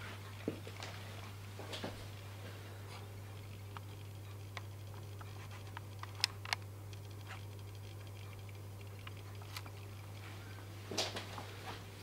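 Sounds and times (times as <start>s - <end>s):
low hum: 0.0s - 12.0s
sharp ticks: 3.3s - 10.2s
camcorder handling clicks: 6.0s - 6.7s.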